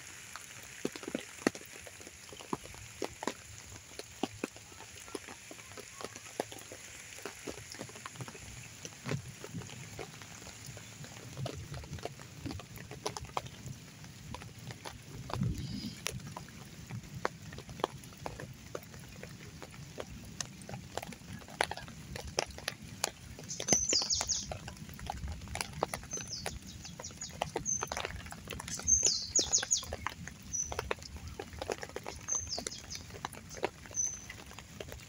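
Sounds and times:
rain hissing: 0:00.0 - 0:35.0
water drips tapping: 0:00.2 - 0:35.0
bird chirping: 0:23.5 - 0:24.5, 0:28.7 - 0:30.9, 0:32.0 - 0:33.1.

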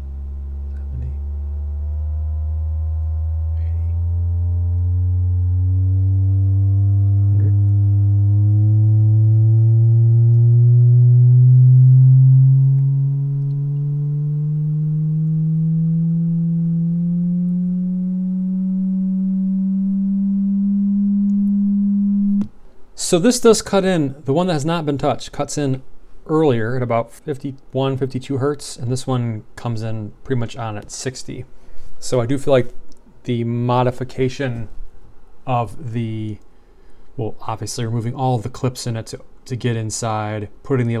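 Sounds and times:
sine tone rising in pitch: 0:00.0 - 0:22.5.

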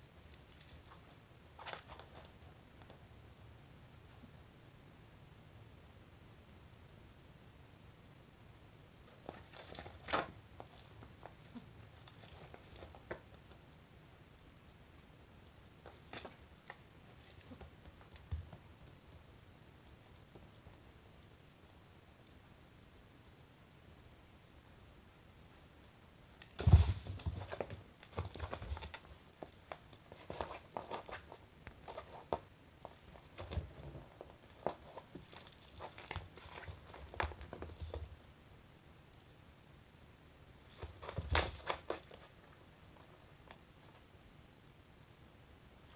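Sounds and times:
kitten scuffling with plush toy: 0:00.0 - 0:03.1, 0:09.0 - 0:13.6, 0:15.8 - 0:19.0, 0:26.4 - 0:38.2, 0:40.6 - 0:44.1.

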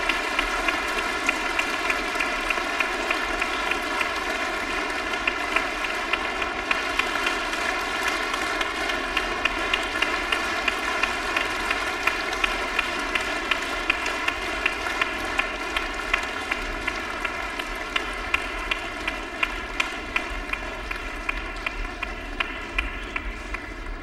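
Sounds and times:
audience clapping in rhythm: 0:00.0 - 0:24.0.

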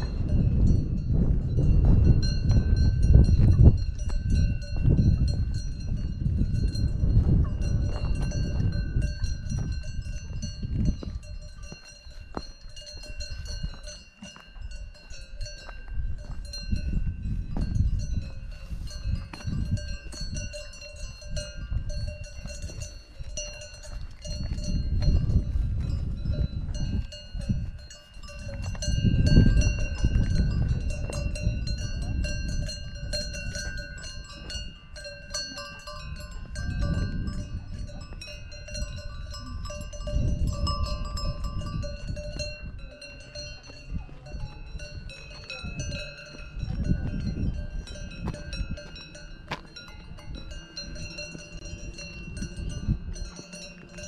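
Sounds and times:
cowbells clanking: 0:00.0 - 0:54.0
wind on microphone: 0:00.0 - 0:54.0.

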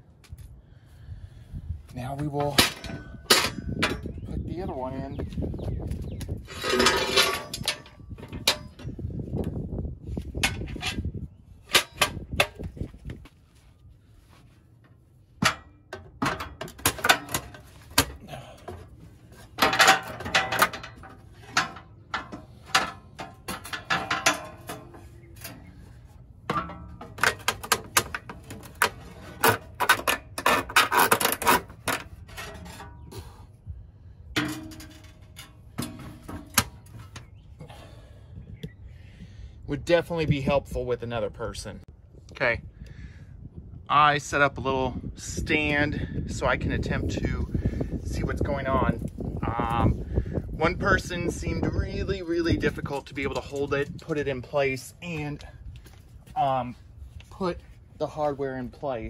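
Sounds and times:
metal clanks and scrapes: 0:02.2 - 0:04.3, 0:06.3 - 0:09.1, 0:10.2 - 0:12.8, 0:14.8 - 0:33.5, 0:34.3 - 0:37.4.

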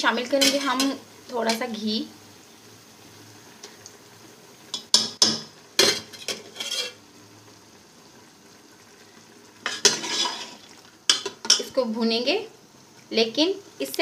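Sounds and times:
faint steady hiss: 0:00.0 - 0:14.0
metal spoon scraping a pot: 0:05.8 - 0:07.0, 0:09.7 - 0:11.6.

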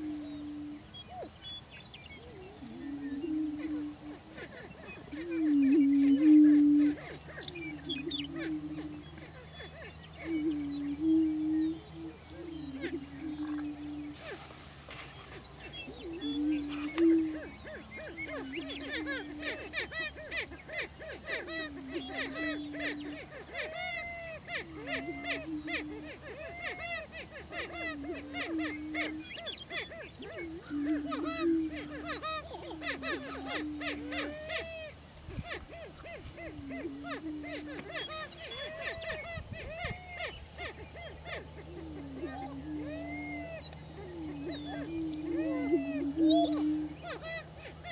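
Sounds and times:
low moaning bird calls: 0:00.0 - 0:47.9
high cackling bird calls: 0:02.2 - 0:47.9.

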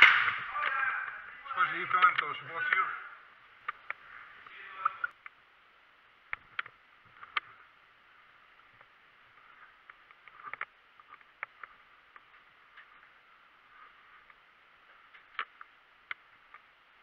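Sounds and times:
steady low hiss: 0:00.0 - 0:17.0
faint clicks and knocks: 0:06.3 - 0:07.7, 0:08.6 - 0:16.8.

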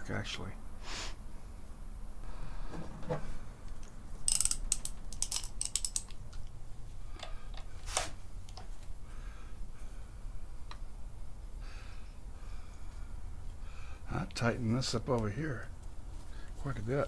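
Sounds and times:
metal tools clinking: 0:04.3 - 0:06.1
ratchet wrench clicking: 0:04.3 - 0:06.2.

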